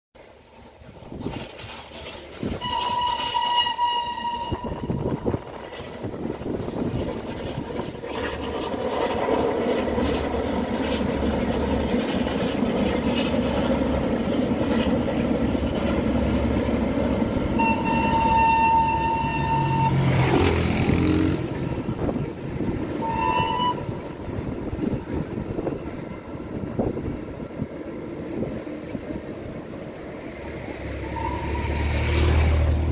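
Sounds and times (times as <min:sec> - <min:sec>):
steam train rumbling past: 0:00.2 - 0:32.9
train whistle blast: 0:02.6 - 0:05.1, 0:17.6 - 0:20.1, 0:23.0 - 0:23.9, 0:31.1 - 0:31.9.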